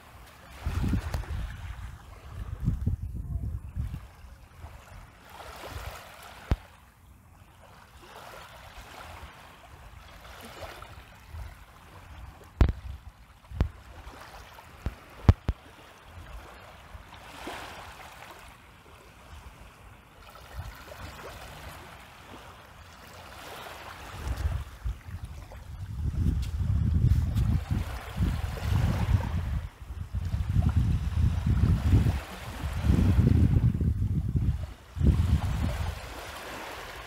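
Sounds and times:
wind rumble on microphone: 0:00.0 - 0:06.0, 0:10.9 - 0:16.6, 0:24.1 - 0:37.0.

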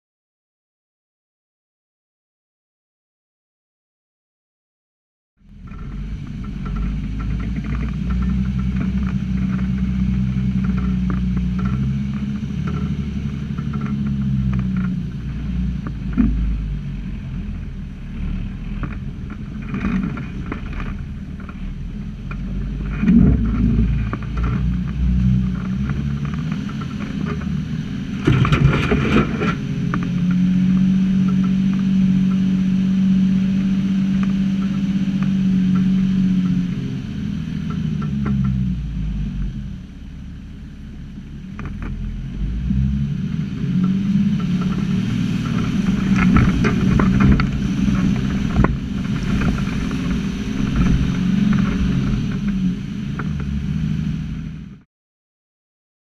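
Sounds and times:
four-wheel drive engine running: 0:05.4 - 0:54.8
rattling and clatter: 0:05.5 - 0:16.4, 0:18.2 - 0:30.4, 0:43.8 - 0:52.6.

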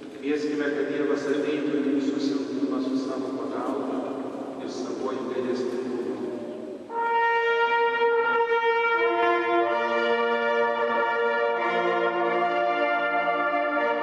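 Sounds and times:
hunting horns playing held notes: 0:06.1 - 0:14.0.

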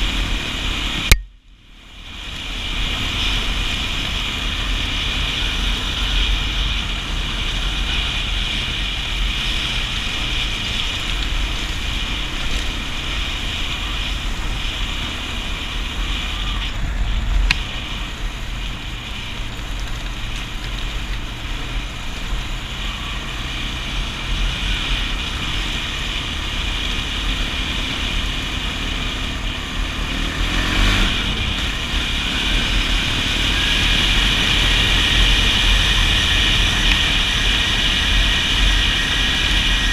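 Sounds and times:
atv engine running: 0:00.0 - 0:39.9
sharp click: 0:01.1 - 0:01.4.

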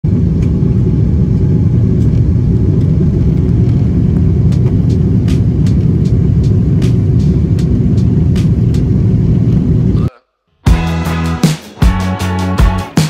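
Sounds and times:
jet cabin engine rumble: 0:00.0 - 0:10.1.

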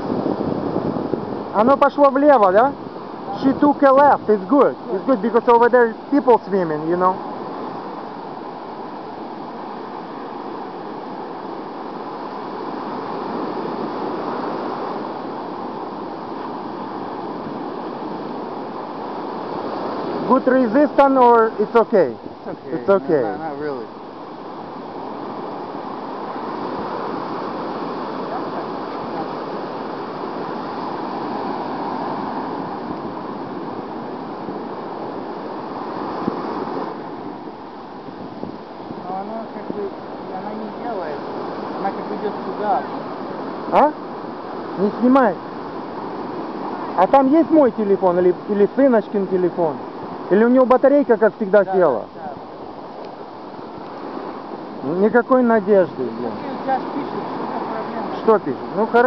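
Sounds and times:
ocean surf breaking: 0:00.0 - 0:59.0
wind on microphone: 0:00.0 - 0:59.0.

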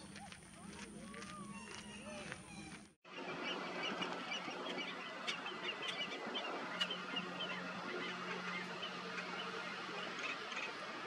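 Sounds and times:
birds chirping: 0:00.0 - 0:11.0.

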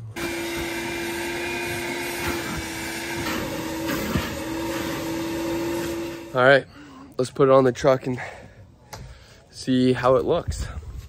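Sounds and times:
shop vacuum running: 0:00.0 - 0:06.6.

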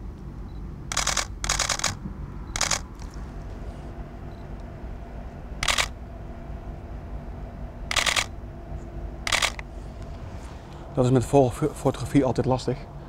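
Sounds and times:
low rumble: 0:00.0 - 0:13.0
camera shutter bursts: 0:00.9 - 0:03.1, 0:05.6 - 0:06.0, 0:07.9 - 0:08.3, 0:09.3 - 0:09.6.

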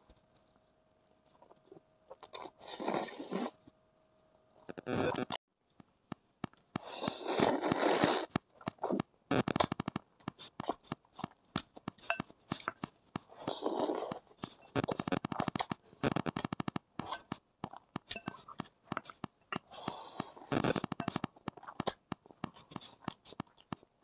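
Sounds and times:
person slurping noodles: 0:02.4 - 0:03.6, 0:06.8 - 0:09.0, 0:13.4 - 0:15.2, 0:19.6 - 0:21.8
wet chewing and smacking: 0:09.6 - 0:23.9
fork clinking against bowl: 0:12.1 - 0:12.7, 0:18.1 - 0:18.6.

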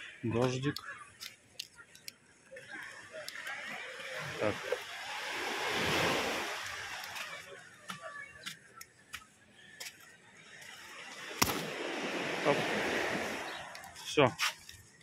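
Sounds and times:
umbrella ribs snapping: 0:11.4 - 0:11.7.

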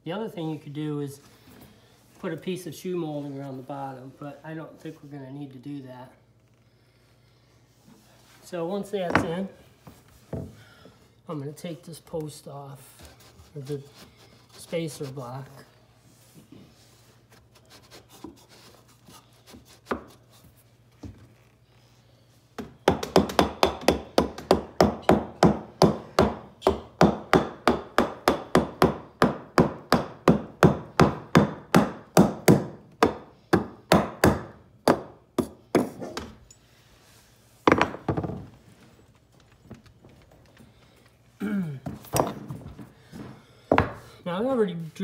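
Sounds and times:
hammer driving nails into wood: 0:22.6 - 0:36.3.

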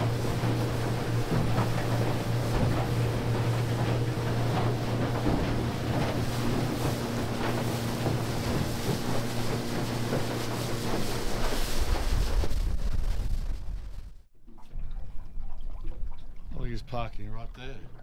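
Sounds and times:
outboard motor running: 0:00.0 - 0:12.7
wind buffeting microphone: 0:00.0 - 0:14.1
water rushing past hull: 0:00.0 - 0:18.0.

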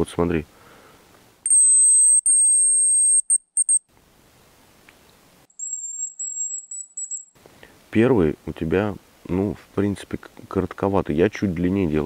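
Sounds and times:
high decoy whistle: 0:01.5 - 0:03.8, 0:05.6 - 0:07.3
lower-pitched whistle: 0:01.5 - 0:03.8, 0:05.6 - 0:07.3.

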